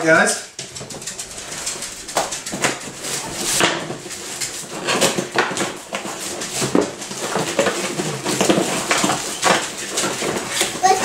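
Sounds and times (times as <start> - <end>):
packaging rustling: 0.7 - 11.0.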